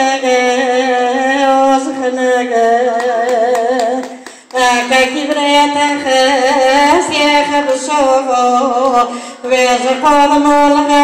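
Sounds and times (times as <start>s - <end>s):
woman singing into a microphone: 0.0s - 11.0s
singer taking a breath: 4.2s - 4.5s, 9.1s - 9.5s.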